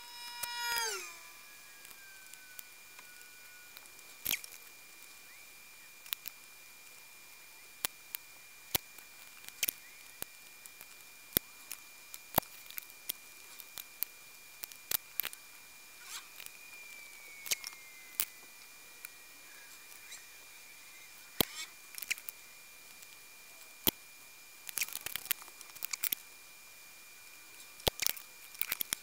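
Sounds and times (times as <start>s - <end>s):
faint high-pitched whine: 0.0s - 29.0s.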